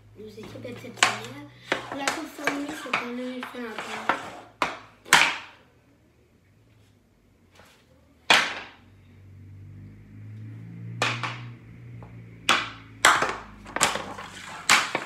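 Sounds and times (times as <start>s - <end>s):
hockey stick striking puck: 0.4s - 5.6s, 8.3s - 8.8s, 10.9s - 15.0s.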